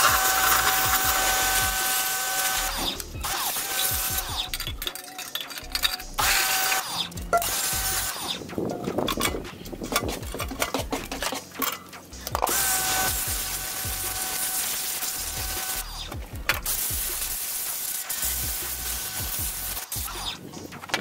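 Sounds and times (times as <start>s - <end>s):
pressure washer motor whine: 0.0s - 4.3s, 12.4s - 16.0s
water jet hissing on metal: 0.0s - 4.6s, 12.5s - 20.4s.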